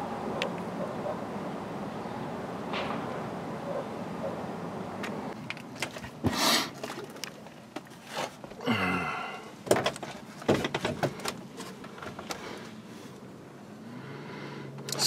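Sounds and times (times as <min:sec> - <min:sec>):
knocks thumps and rustling: 0:09.6 - 0:12.4.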